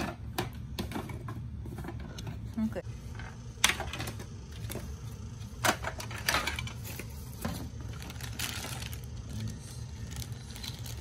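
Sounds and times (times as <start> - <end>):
hard plastic parts clattering: 5.6 - 9.0
plastic wrapping crinkling: 6.7 - 11.0.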